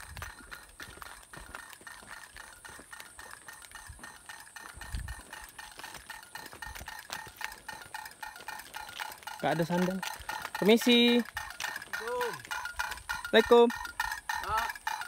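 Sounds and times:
pinwheel clacking: 0.0s - 15.0s.

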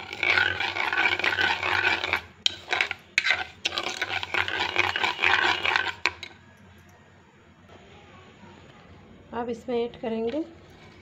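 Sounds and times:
spoon scraping sugar in bowl: 0.0s - 6.4s.

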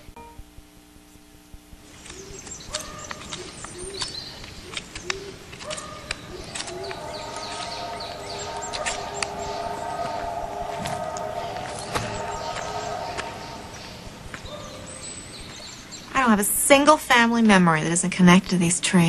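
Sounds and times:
steady held tones: 1.6s - 15.9s
sharp clicks: 2.0s - 10.4s
low soft bird hooting: 2.0s - 16.1s
high falling bird chirps: 2.0s - 16.2s.

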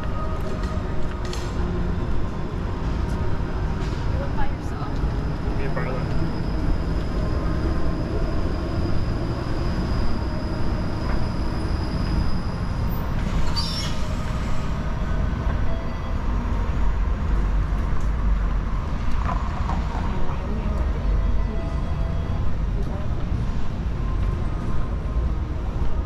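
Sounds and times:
wheels screeching: 0.0s - 17.7s
streetcar rolling on rails: 0.0s - 26.0s.

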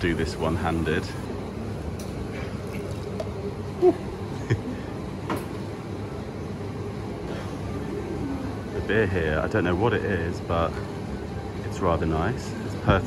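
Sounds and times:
steady low hum: 0.0s - 13.0s
beer pouring into a plastic cup: 2.6s - 3.4s.

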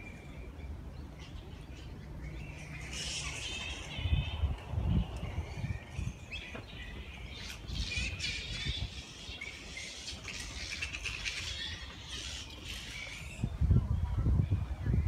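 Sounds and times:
flying foxes squeaking and chattering: 0.0s - 13.7s.

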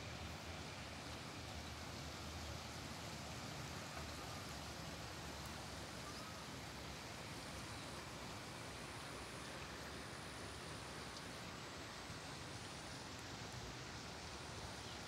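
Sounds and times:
faint outdoor hiss: 0.0s - 15.0s.

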